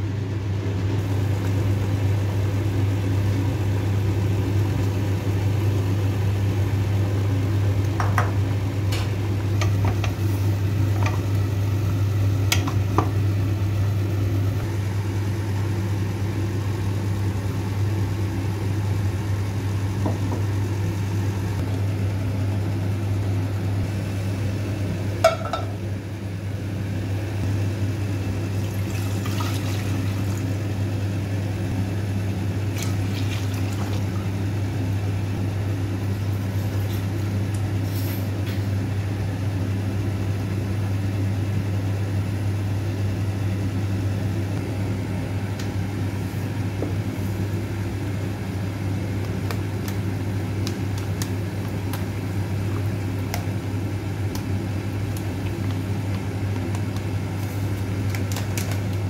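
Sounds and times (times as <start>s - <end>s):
low mechanical hum: 0.0s - 59.0s
utensils tapping on a pan: 25.2s - 25.7s
water poured into saucepan: 28.6s - 30.5s, 32.7s - 34.0s.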